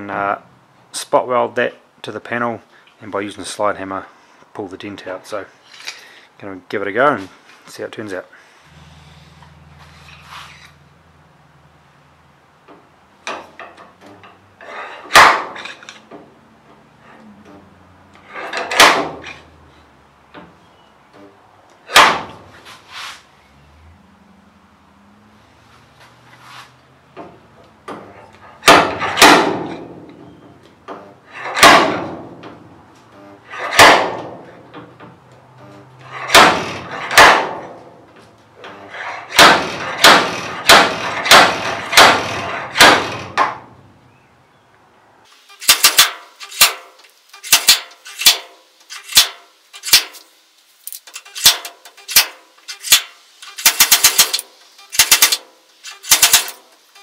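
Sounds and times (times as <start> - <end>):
slide hammer hitting steel: 15.1 - 15.7, 18.5 - 19.4, 21.9 - 22.4, 28.6 - 30.0, 31.3 - 32.4, 33.5 - 34.5, 36.1 - 37.8, 39.2 - 43.6
rattling clicks: 50.9 - 57.0.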